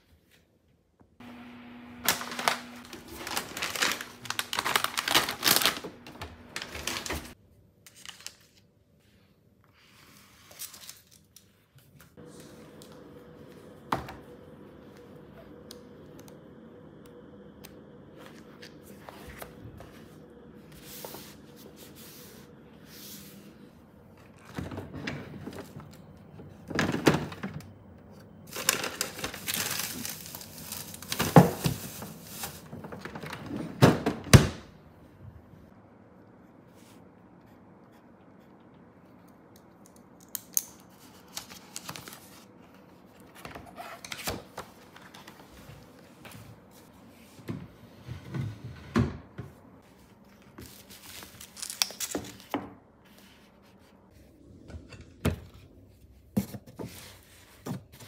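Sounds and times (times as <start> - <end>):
plastic-wrapped food rummaged: 2.0 - 7.4, 28.5 - 33.8
packets and paper crinkling: 2.0 - 8.6, 28.4 - 33.3, 50.2 - 52.6
magazine pages flipping: 2.0 - 8.7, 28.5 - 33.0, 40.9 - 42.6, 50.1 - 52.6
steady low hum: 12.2 - 28.6.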